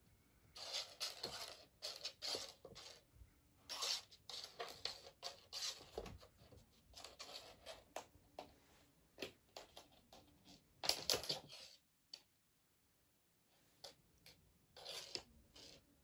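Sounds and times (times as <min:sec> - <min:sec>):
claws scratching and skittering on floor: 0:00.6 - 0:03.1, 0:03.7 - 0:08.5, 0:14.8 - 0:16.0.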